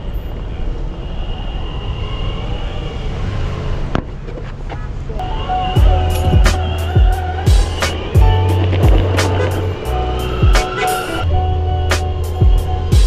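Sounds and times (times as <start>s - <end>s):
traffic noise: 0.0s - 13.0s
skateboard rolling on asphalt: 6.2s - 11.2s.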